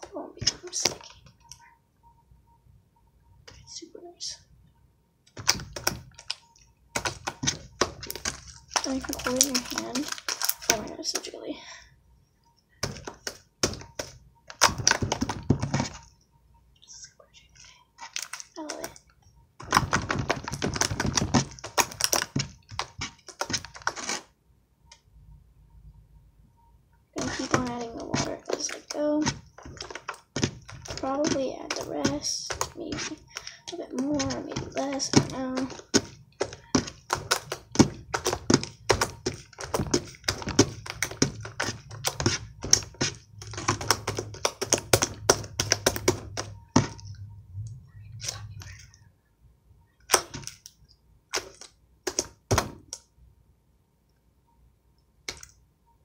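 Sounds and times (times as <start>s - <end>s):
slime squelching and clicking: 5.2s - 11.4s, 12.5s - 16.2s, 16.8s - 24.3s, 27.2s - 49.0s, 50.0s - 53.1s, 55.0s - 55.7s.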